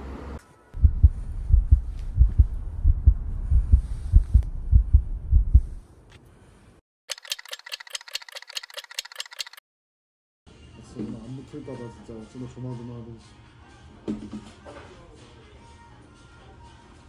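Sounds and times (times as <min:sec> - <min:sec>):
heartbeat thumps: 0:00.8 - 0:05.8.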